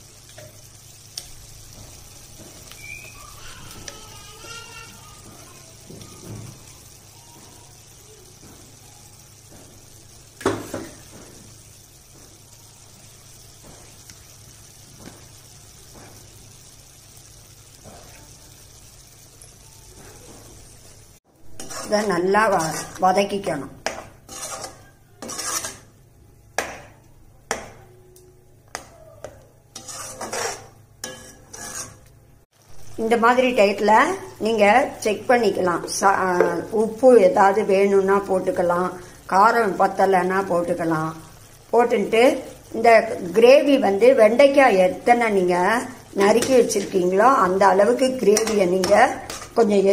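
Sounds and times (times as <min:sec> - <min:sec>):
faint sizzle: 0:00.0 - 0:49.9
ladle stirring food: 0:21.5 - 0:26.0, 0:28.7 - 0:32.2, 0:46.0 - 0:49.6
ladle knocking on pan: 0:26.6 - 0:27.8.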